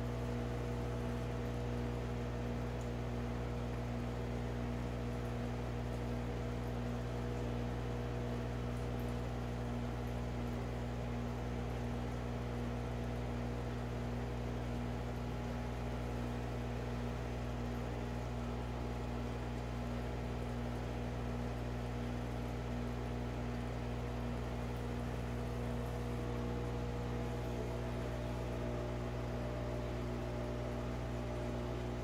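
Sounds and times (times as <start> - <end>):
aquarium equipment humming: 0.0 - 32.0.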